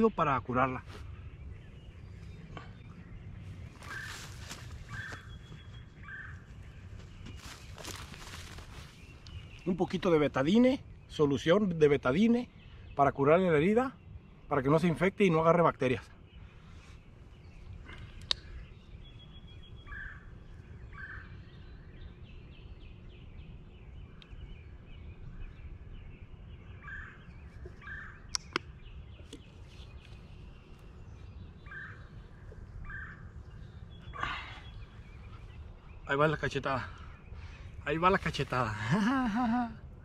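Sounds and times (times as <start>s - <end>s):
low wind rumble: 0.0s - 40.0s
sharp clicks: 28.3s - 28.7s.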